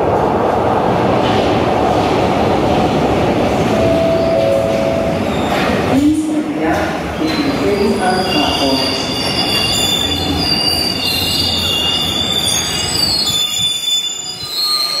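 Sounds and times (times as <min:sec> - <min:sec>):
train low rumble: 0:00.0 - 0:13.4
train wheels squealing: 0:07.2 - 0:15.0.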